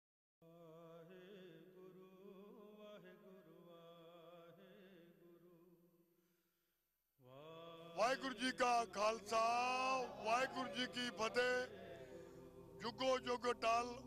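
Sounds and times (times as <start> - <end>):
person chanting: 7.2 - 14.0
steady held drone: 9.3 - 14.0.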